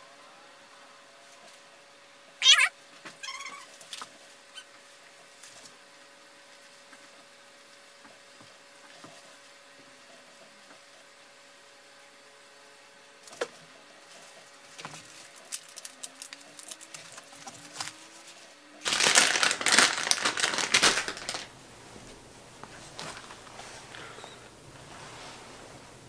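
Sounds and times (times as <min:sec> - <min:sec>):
plastic bag crinkling: 0:15.0 - 0:18.0, 0:18.8 - 0:21.5.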